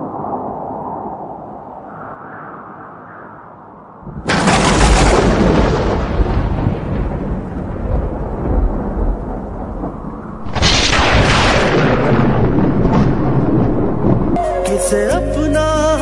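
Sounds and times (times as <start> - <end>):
loud rumbling booms: 4.0 - 14.4.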